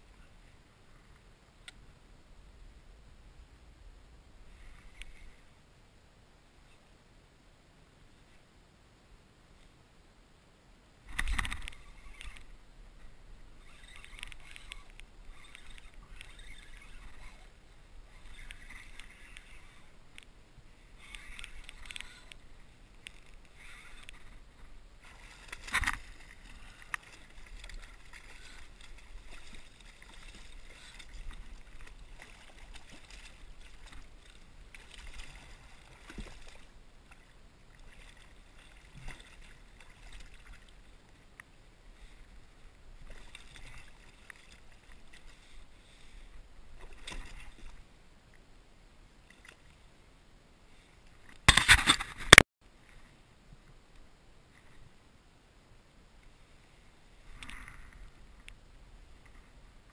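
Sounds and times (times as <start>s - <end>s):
water splashing against kayak: 11.0s - 48.0s, 51.1s - 52.4s.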